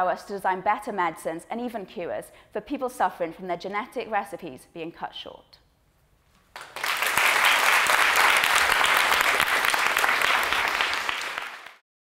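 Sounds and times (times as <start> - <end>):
audience applauding: 6.5 - 11.8.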